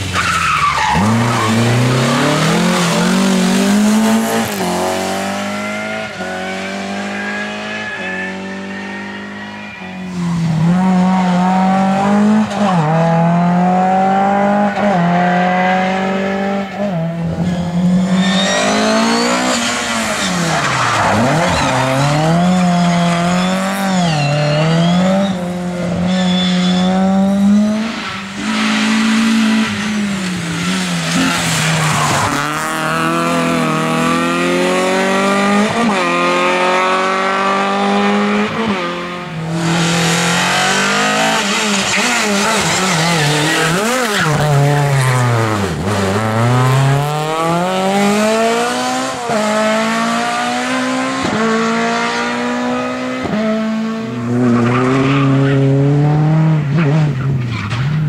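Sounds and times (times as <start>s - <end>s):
rally car engines revving: 0.0s - 58.0s
tyre squeal: 0.1s - 3.5s, 6.1s - 11.3s, 17.4s - 27.3s, 39.6s - 47.0s.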